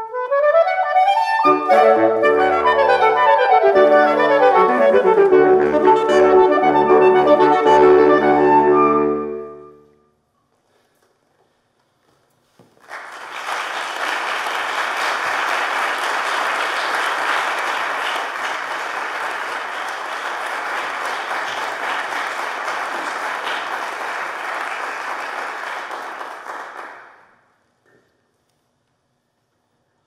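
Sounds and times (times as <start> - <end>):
audience applauding: 12.7 - 27.4.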